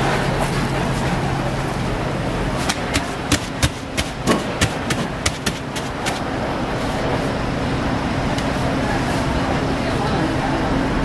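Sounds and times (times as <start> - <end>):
steady background noise: 0.0 - 11.0
hands slapping dough: 2.6 - 6.3.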